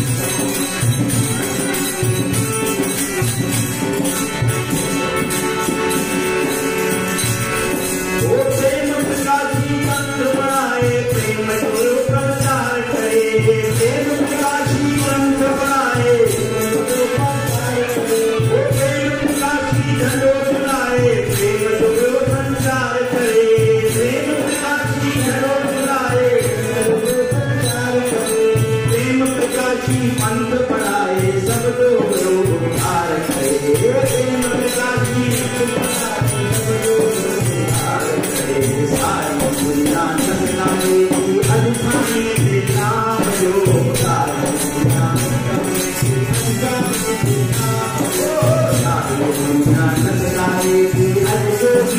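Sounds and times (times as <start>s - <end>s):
harmonium melody: 0.0s - 51.9s.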